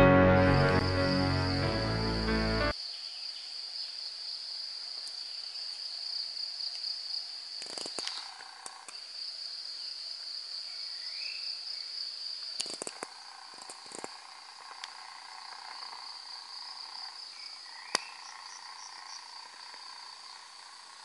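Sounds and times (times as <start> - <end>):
high-pitched insect drone: 0.2 - 2.8, 12.6 - 21.0.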